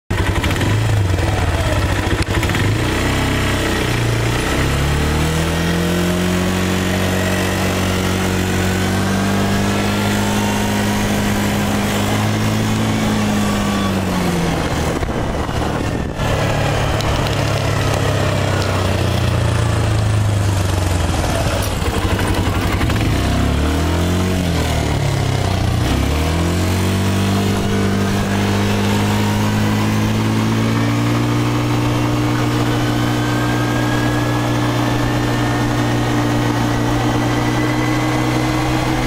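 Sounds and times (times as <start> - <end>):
atv engine revving: 0.1 - 39.0.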